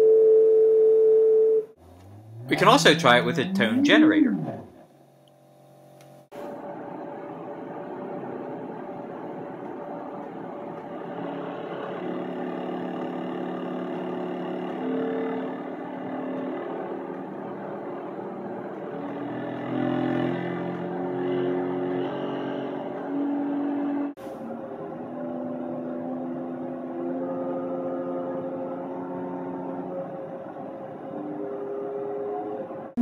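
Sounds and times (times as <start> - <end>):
electronic tones: 2.4 - 4.7, 14.8 - 16.6.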